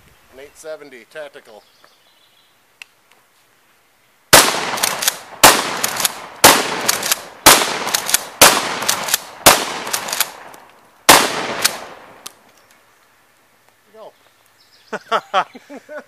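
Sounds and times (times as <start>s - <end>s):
shotgun shots: 4.3s - 12.2s.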